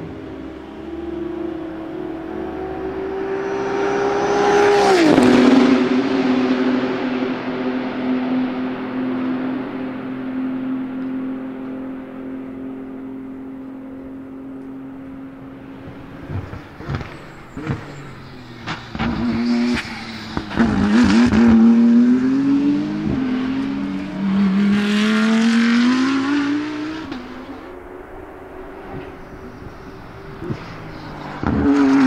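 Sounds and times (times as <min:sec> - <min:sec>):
race car engine at high revs: 0:00.0 - 0:32.0
exhaust cracks: 0:15.8 - 0:21.6.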